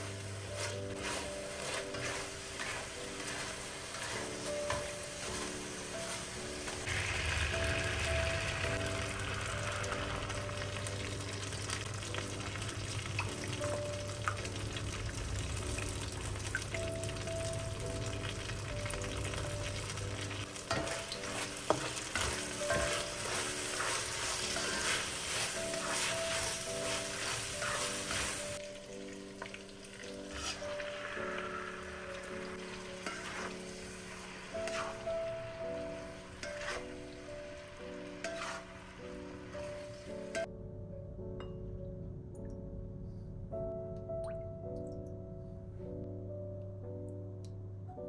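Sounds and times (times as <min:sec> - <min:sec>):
spatula scraping a pan: 0:00.0 - 0:11.8, 0:20.5 - 0:28.6, 0:30.1 - 0:40.5
food sizzling in a pan: 0:00.0 - 0:40.5
soft background music: 0:00.0 - 0:48.0.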